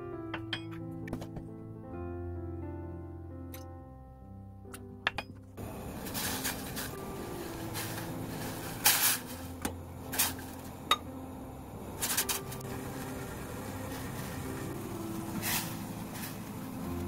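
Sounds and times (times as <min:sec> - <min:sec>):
steady low hiss: 0:05.6 - 0:17.0.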